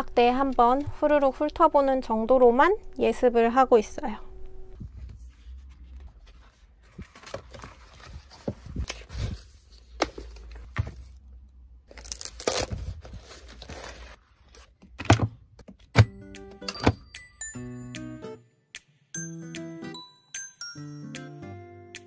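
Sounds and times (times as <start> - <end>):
paper pages rustling and flipping: 4.8 - 11.2, 11.9 - 15.2
paper ripping: 11.9 - 14.2.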